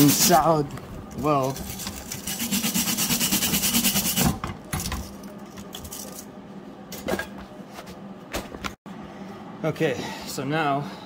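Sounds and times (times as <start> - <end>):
wire brush scrubbing metal: 0.0 - 0.6, 1.4 - 4.3.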